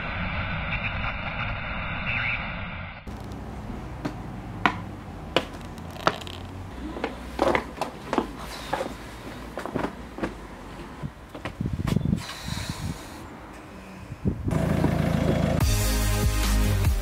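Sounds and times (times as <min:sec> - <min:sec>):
footsteps clicking: 0:03.1 - 0:12.0.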